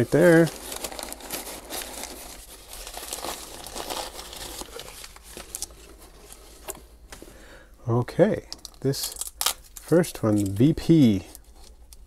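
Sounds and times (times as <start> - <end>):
shredded paper rustling: 0.0 - 6.6.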